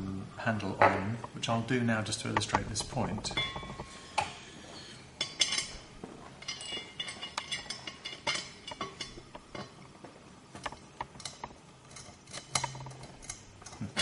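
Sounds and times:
metal parts clicking and clinking: 5.2s - 9.8s, 10.6s - 14.0s.

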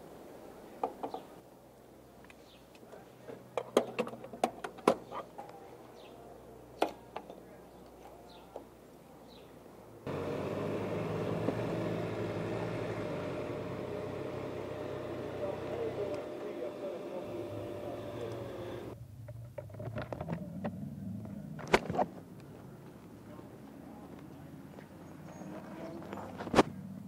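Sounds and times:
motorcycle engine idling: 10.1s - 19.0s.

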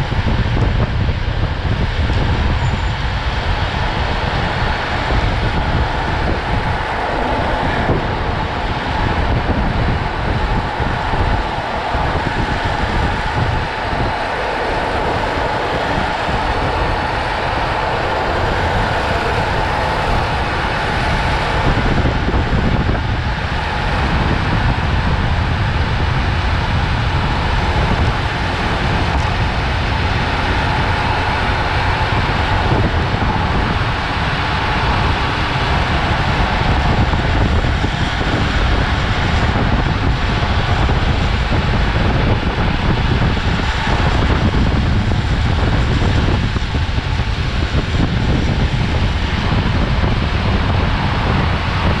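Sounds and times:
skateboard wheels rolling on asphalt: 0.0s - 52.0s
wind rushing across microphone: 0.0s - 52.0s.

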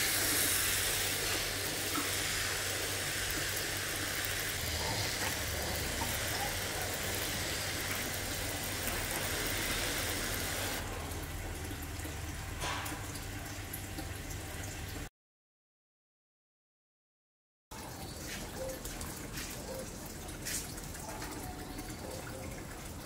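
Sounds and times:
water sprayer misting: 0.0s - 11.0s.

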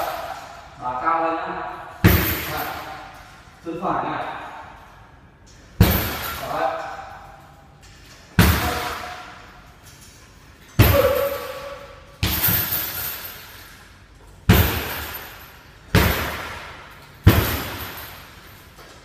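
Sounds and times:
kicks and punches on heavy bag: 2.0s - 2.9s, 5.8s - 6.5s, 8.3s - 9.4s, 10.8s - 13.3s, 14.4s - 18.5s.

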